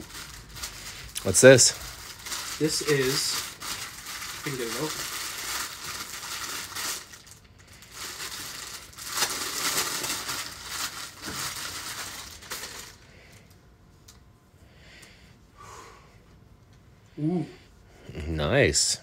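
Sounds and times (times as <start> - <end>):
plastic bag crinkling: 0.0 - 13.6.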